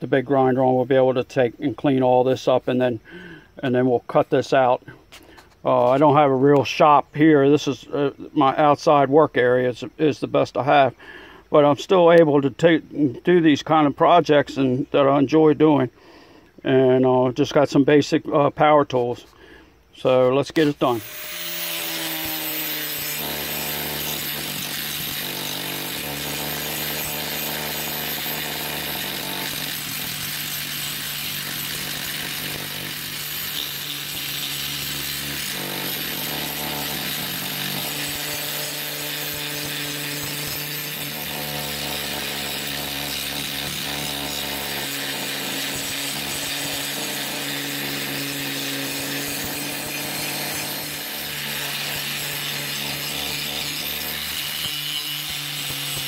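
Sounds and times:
wire wheel grinder scouring rust: 20.0s - 56.0s.

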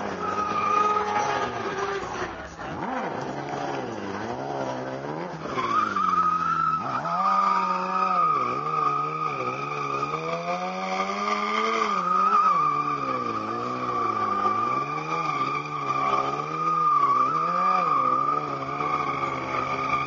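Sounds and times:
motorcycle engine revving: 0.0s - 20.0s
tyre squealing on asphalt: 0.0s - 20.0s.

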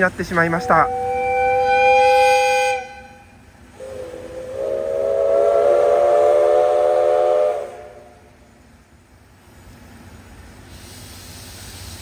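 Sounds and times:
steam whistle blast: 0.5s - 8.3s.

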